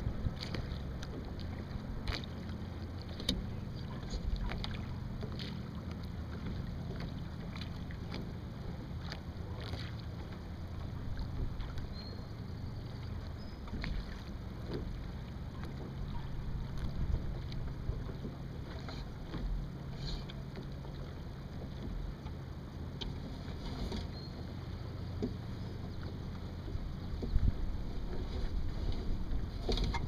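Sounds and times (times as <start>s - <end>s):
wind rumble on microphone: 0.0s - 5.6s, 13.4s - 19.7s, 25.2s - 30.0s
water slapping against hull: 0.0s - 30.0s.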